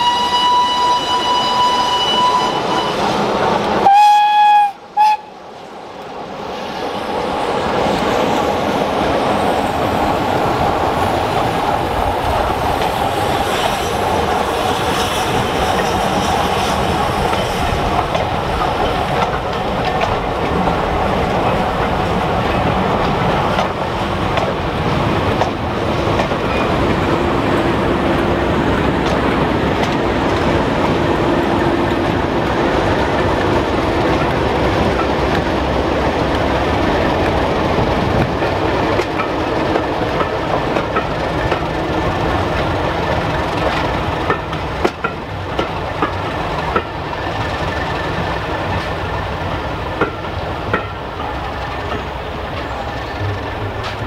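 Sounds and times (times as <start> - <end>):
train horn: 0.0 - 3.1, 3.8 - 5.3
train rumbling past: 0.0 - 54.0
wheels clicking over rail joints: 17.2 - 27.0, 31.8 - 54.0.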